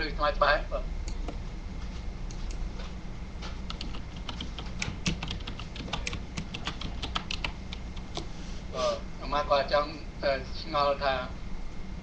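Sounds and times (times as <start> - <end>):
steady low hum: 0.0 - 12.0
keyboard typing clicks: 3.7 - 8.3.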